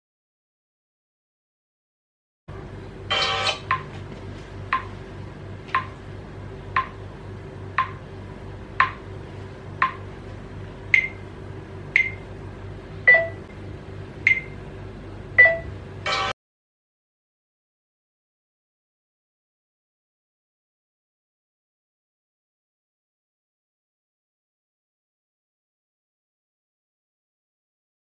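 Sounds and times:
steady low hum: 2.5s - 16.4s
electronic tick-beeps: 7.8s - 8.0s, 8.8s - 9.0s, 10.9s - 11.2s, 11.9s - 12.2s, 14.2s - 14.6s.

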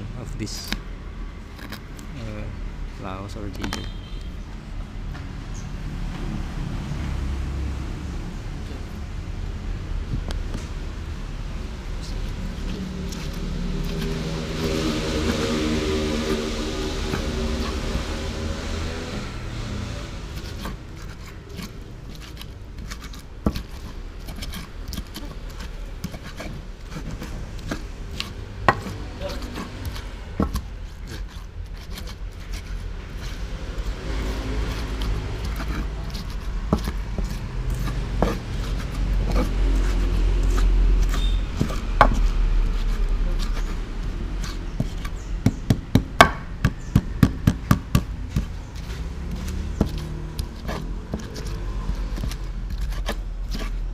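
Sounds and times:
stone pestle grinding in mortar: 11.9s - 53.9s
pestle pounding taps: 21.5s - 31.2s, 34.7s - 42.9s, 43.5s - 53.7s.

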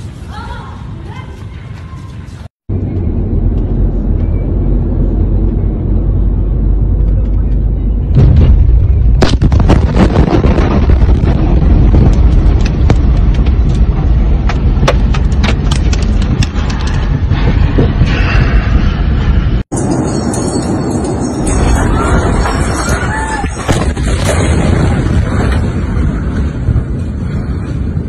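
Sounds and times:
car road rumble: 2.7s - 20.0s
huge explosion boom: 8.0s - 20.0s, 21.4s - 28.0s
sharp cracks and rattles: 9.2s - 19.0s.

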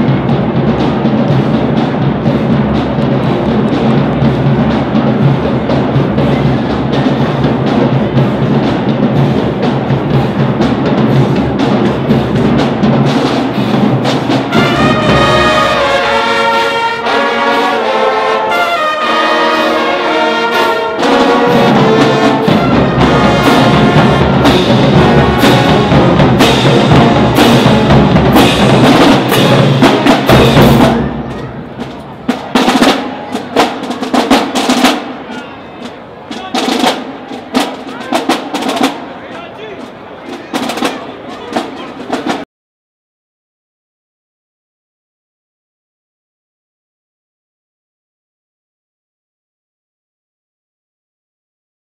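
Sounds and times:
drum line strokes: 0.0s - 42.4s
marching band playing: 0.0s - 42.4s
horns playing: 14.4s - 42.4s.

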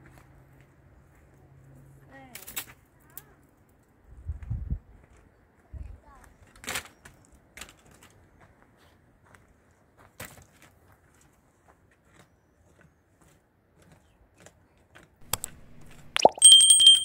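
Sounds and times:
metal clank and ring: 16.4s - 17.0s.

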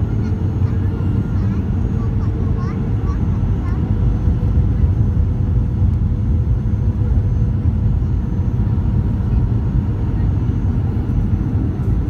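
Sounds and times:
jet engine and airflow rumble: 0.0s - 12.0s.

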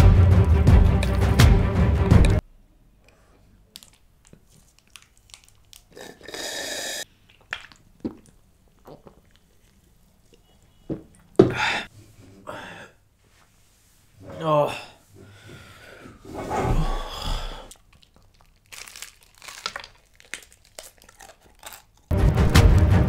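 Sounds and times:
breathing: 3.0s - 3.5s, 11.5s - 13.0s, 14.7s - 17.8s
swallowing: 5.9s - 11.9s.

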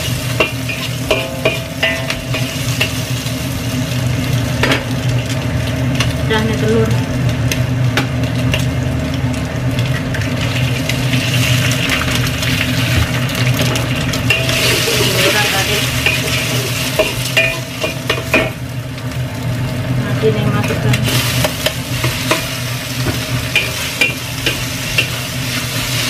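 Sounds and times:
oil sizzling in a wok: 0.0s - 26.0s
spatula scraping a wok: 14.3s - 18.4s, 21.0s - 26.0s.

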